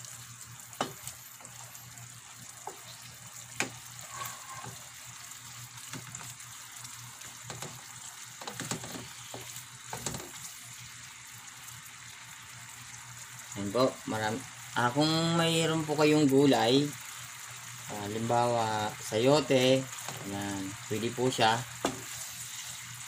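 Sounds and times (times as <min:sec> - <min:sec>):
food simmering with a hiss: 0:00.0 - 0:23.0
wooden spatula scraping a pan: 0:03.6 - 0:04.9, 0:21.8 - 0:22.9.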